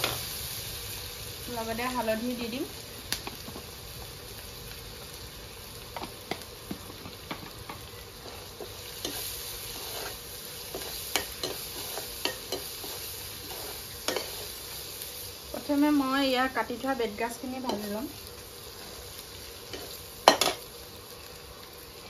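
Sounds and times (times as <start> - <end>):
food sizzling in a wok: 0.0 - 22.0
spatula scraping a pan: 7.7 - 15.0.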